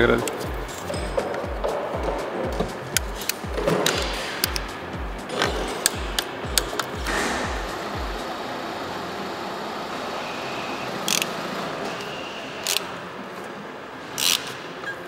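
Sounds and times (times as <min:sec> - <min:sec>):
workshop background noise: 0:00.0 - 0:15.0
sharp high-pitched tool noises: 0:05.3 - 0:13.0, 0:14.2 - 0:15.0.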